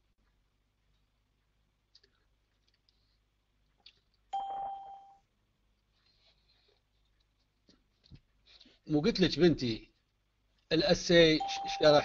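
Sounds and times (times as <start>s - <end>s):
electronic notification chime: 4.4s - 5.2s.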